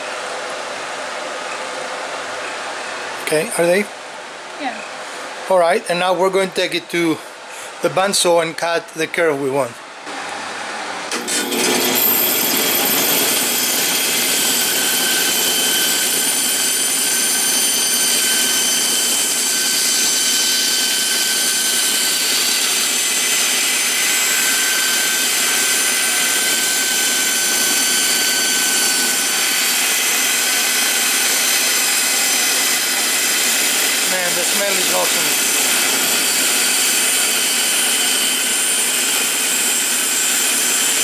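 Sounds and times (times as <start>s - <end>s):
bandsaw cutting wood: 11.1s - 41.0s.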